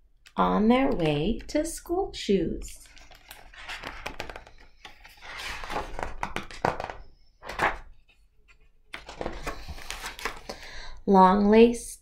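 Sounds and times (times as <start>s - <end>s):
paper rustling: 2.7s - 10.6s.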